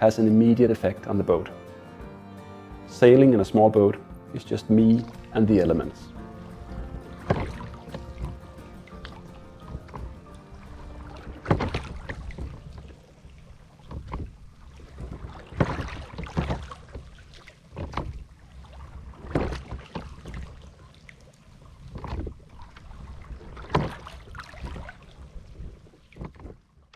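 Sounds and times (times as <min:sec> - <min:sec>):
water splashing along boat hull: 0:03.0 - 0:26.9
wind rumble on microphone: 0:21.8 - 0:26.7.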